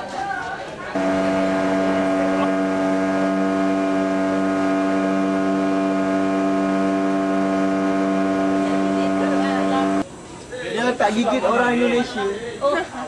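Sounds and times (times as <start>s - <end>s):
motorboat engine humming: 1.0s - 10.1s.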